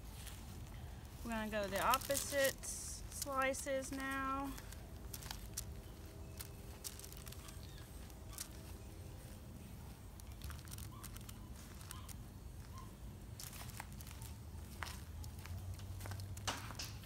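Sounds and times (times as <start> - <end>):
paper rustling and clicks: 4.6 - 8.6, 10.2 - 12.2.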